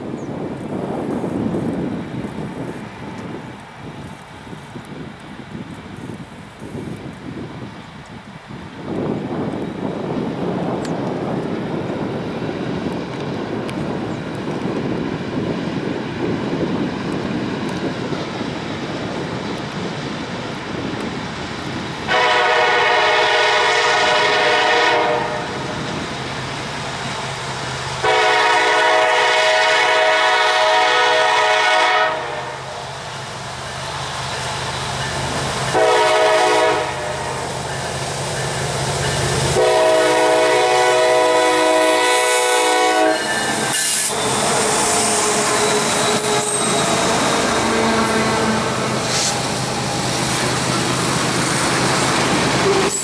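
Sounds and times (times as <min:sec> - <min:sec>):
diesel locomotive engine rumble: 0:00.0 - 0:53.0
train horn: 0:22.1 - 0:25.8, 0:28.0 - 0:32.7, 0:35.7 - 0:37.4, 0:39.5 - 0:49.3.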